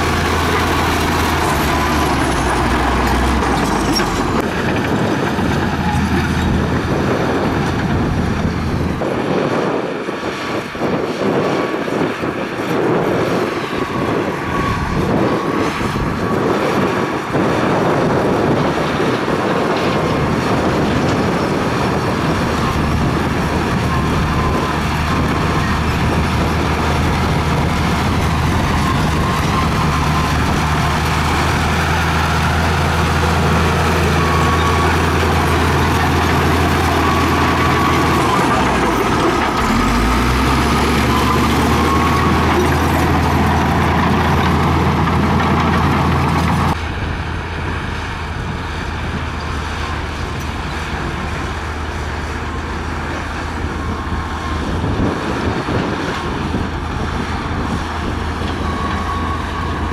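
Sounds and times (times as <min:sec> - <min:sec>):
blade pushing dirt: 0:00.0 - 0:06.4
clattering dozer tracks: 0:00.0 - 0:09.7, 0:12.5 - 0:47.1
dozer diesel engine under load: 0:00.0 - 0:59.9.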